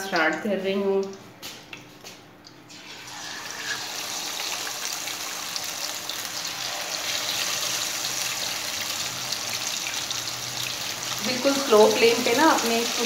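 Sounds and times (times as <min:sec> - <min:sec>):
fish sizzling in hot oil: 0:02.7 - 0:13.0.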